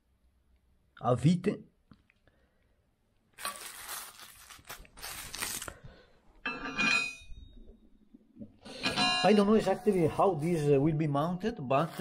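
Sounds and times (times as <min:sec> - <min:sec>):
bubble wrap crinkling: 0:03.3 - 0:05.9.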